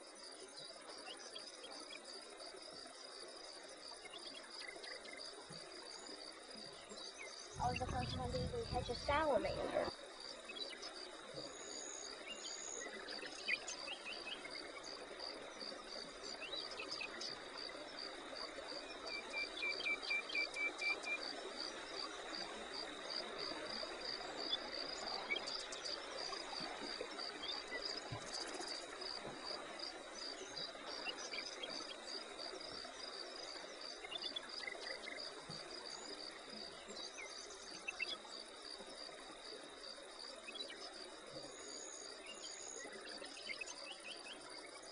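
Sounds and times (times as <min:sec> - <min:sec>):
constant high buzz: 0:00.0 - 0:44.9
insects chirping rhythmically: 0:00.0 - 0:44.9.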